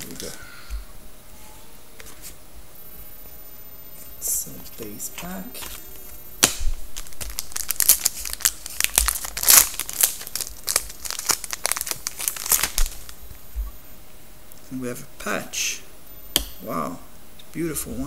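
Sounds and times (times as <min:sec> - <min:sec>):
foil wrapper tearing and crinkling: 0:06.4 - 0:13.2.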